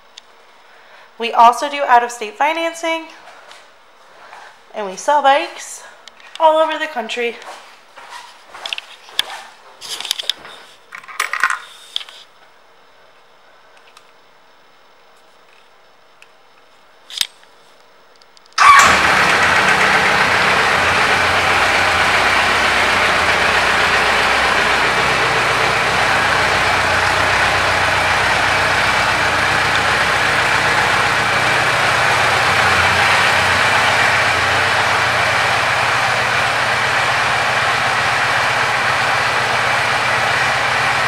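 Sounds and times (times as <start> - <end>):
motorcycle engine starting and idling: 18.6 - 41.0.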